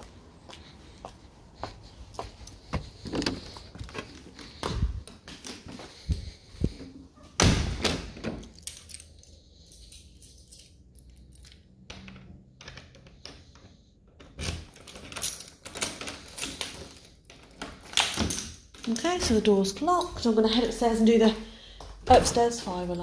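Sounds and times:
keys jangling: 8.4s - 11.8s, 14.4s - 19.3s.

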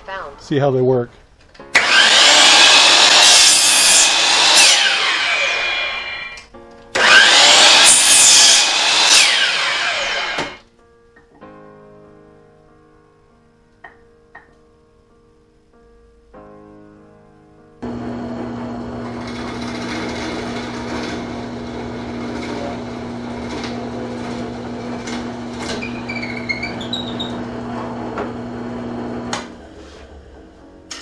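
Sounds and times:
soft background music: 10.6s - 17.8s
drill press motor humming: 17.8s - 31.0s
clicks and scraping: 22.1s - 28.4s.

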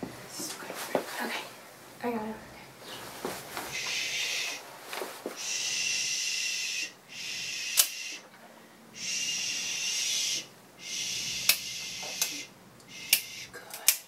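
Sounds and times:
person shushing: 5.4s - 8.2s, 9.0s - 13.9s
nail clippers snip: 7.8s - 8.0s, 11.4s - 12.4s, 13.0s - 14.0s.

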